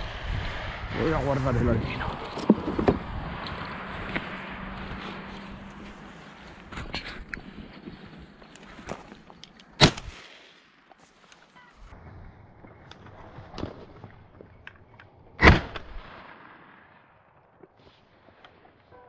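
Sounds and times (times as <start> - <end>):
shotgun shots: 9.8 - 10.7, 15.4 - 16.8.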